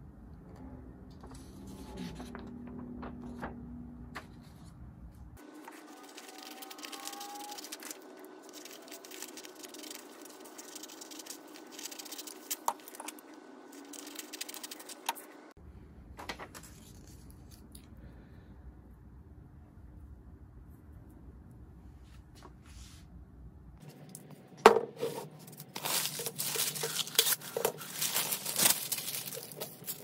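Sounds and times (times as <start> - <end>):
low hum: 0.0 - 16.1
scissors cutting paper: 5.5 - 15.3, 25.4 - 30.0.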